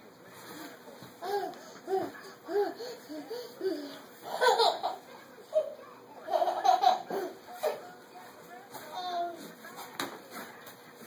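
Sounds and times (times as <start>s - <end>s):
baby laughing: 1.2s - 7.8s.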